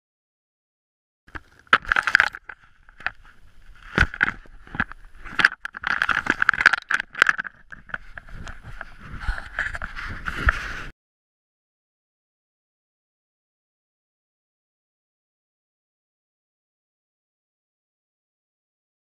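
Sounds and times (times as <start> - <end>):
camera handling noise: 1.3 - 10.7.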